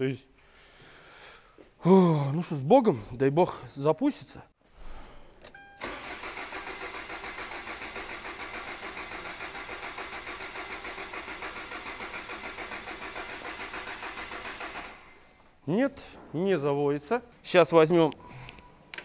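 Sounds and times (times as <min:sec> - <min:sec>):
starter motor cranking diesel engine: 0:05.8 - 0:15.2.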